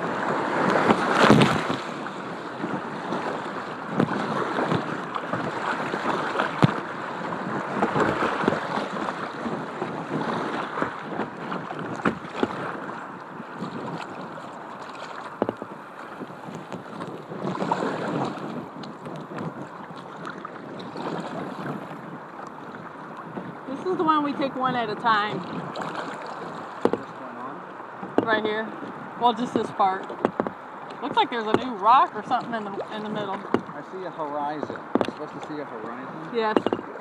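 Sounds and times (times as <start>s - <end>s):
water rushing and splashing: 0.0s - 37.0s
knocks against kayak hull: 10.1s - 12.9s, 15.0s - 22.0s, 25.5s - 27.1s, 28.0s - 29.0s, 30.0s - 31.8s, 32.5s - 33.8s, 34.7s - 35.2s, 36.4s - 37.0s.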